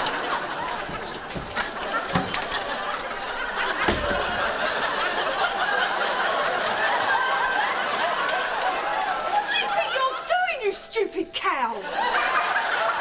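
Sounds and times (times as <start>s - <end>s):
studio audience laughing: 0.0s - 10.3s, 11.6s - 13.0s
thuds: 3.5s - 4.6s.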